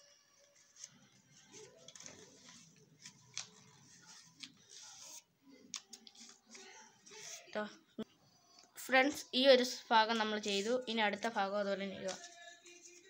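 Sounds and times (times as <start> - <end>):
paper rustling and crackling: 0.5 - 7.6, 11.2 - 13.0.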